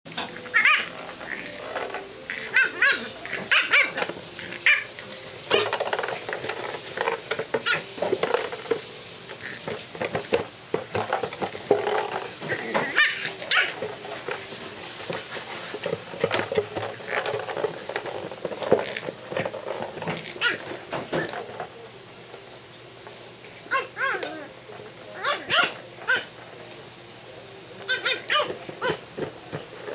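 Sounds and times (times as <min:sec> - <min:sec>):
plastic bottle crinkling: 0:00.2 - 0:21.8
puppy yipping: 0:00.5 - 0:01.4, 0:02.3 - 0:04.0, 0:04.6 - 0:04.9, 0:23.7 - 0:24.4, 0:25.2 - 0:26.3, 0:27.9 - 0:29.0.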